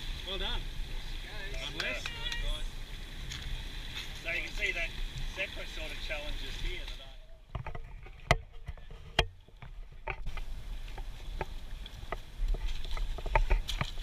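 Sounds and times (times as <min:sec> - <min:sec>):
footsteps on rock and sand: 0:10.2 - 0:14.0.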